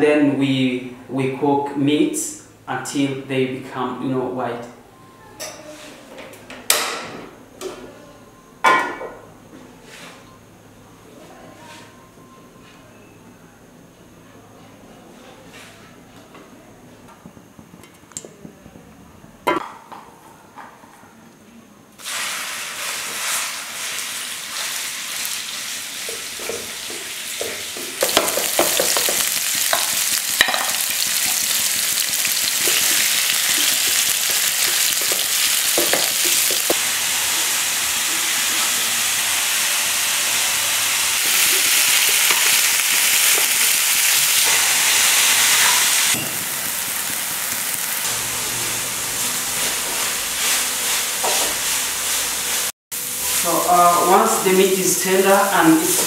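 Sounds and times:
meat sizzling in a frying pan: 22.0s - 56.0s
wooden spatula scraping a pan: 49.5s - 52.4s.

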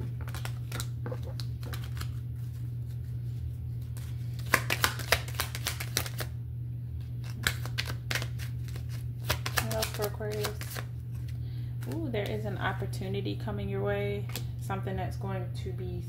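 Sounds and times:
cards being shuffled: 0.0s - 6.3s, 7.0s - 12.4s
steady low hum: 0.0s - 16.0s
card snaps: 4.4s - 6.3s.

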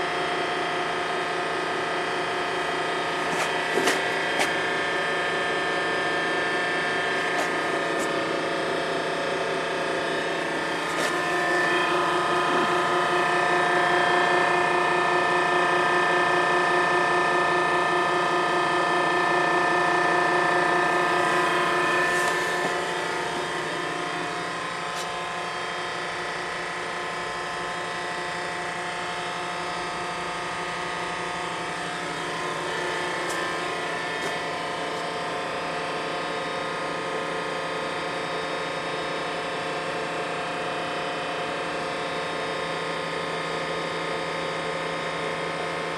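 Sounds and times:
hydraulic power unit whining hum: 0.0s - 45.9s.

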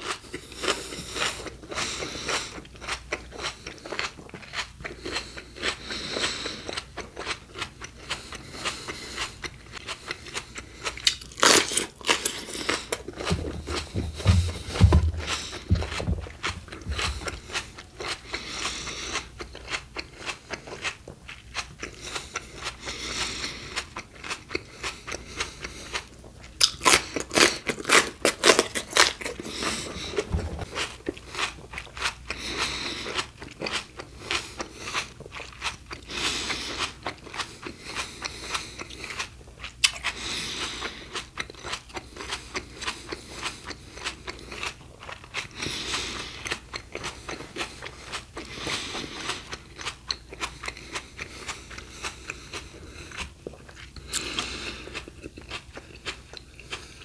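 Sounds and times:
person crunching raw vegetables: 0.0s - 57.0s
low thuds: 13.2s - 17.4s.

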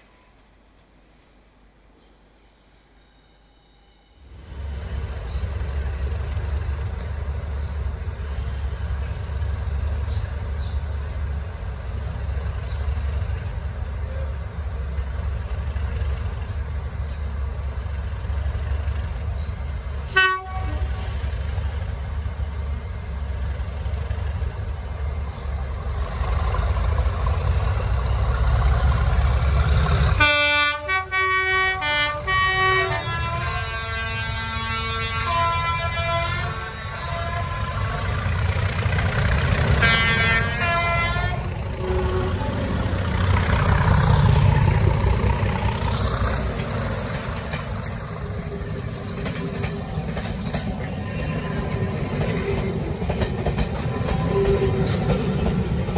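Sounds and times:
diesel locomotive engine growling: 4.3s - 55.9s
locomotive horn: 20.1s - 21.2s, 30.2s - 38.3s, 39.7s - 43.2s.

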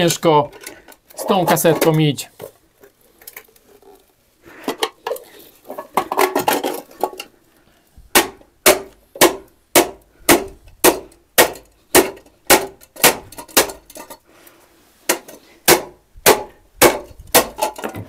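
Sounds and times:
metallic clinking and rattling: 11.5s - 14.2s.

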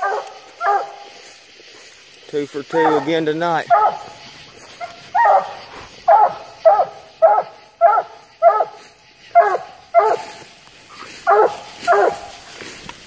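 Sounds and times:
dog barking: 0.0s - 1.1s, 2.7s - 4.1s, 4.8s - 10.4s, 11.2s - 12.3s.

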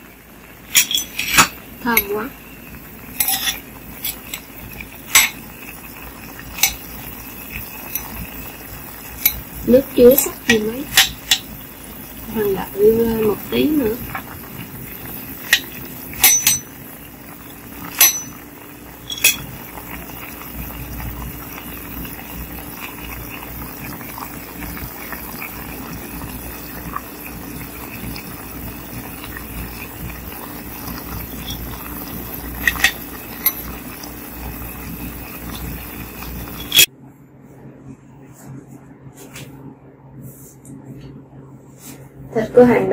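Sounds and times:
pot bubbling: 0.0s - 36.9s
metal spoon clinking on pot: 0.7s - 2.1s, 3.2s - 5.4s, 6.5s - 8.5s, 10.2s - 11.6s, 15.0s - 16.9s, 17.8s - 19.5s, 31.1s - 34.6s, 36.3s - 36.9s.

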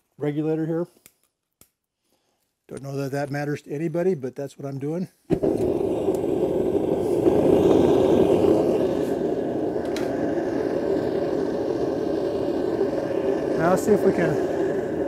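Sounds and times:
gas burner rushing: 5.3s - 15.0s.

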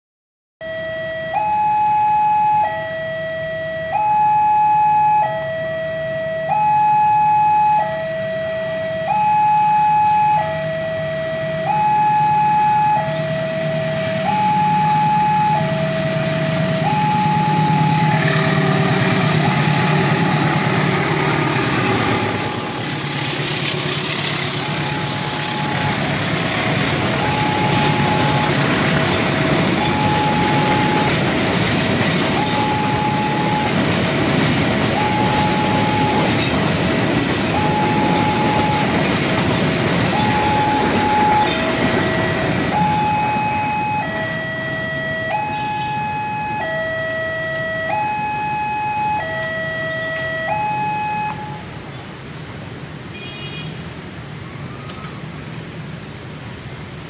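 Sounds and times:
level crossing alarm two-tone: 0.6s - 20.2s, 22.2s - 22.8s, 24.6s - 36.7s, 37.4s - 39.1s, 40.0s - 51.7s
train rumbling past: 10.4s - 53.1s.

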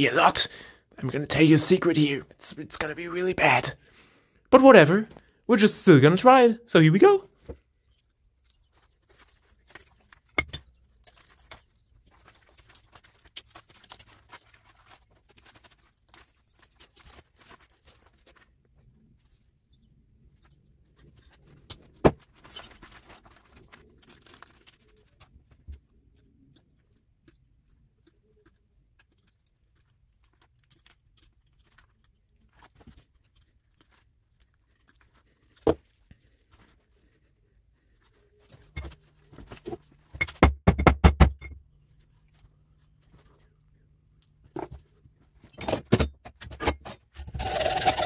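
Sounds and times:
hard knocks: 40.3s - 41.4s.

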